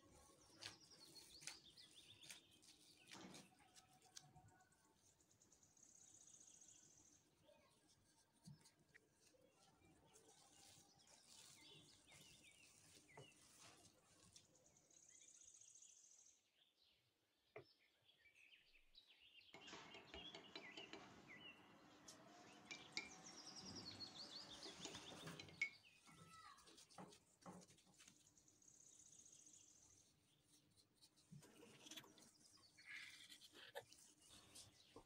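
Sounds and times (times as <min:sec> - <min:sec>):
rustling and clicking handling noises: 0:00.0 - 0:05.3, 0:24.6 - 0:28.7
faint high bird chirps: 0:00.0 - 0:26.8.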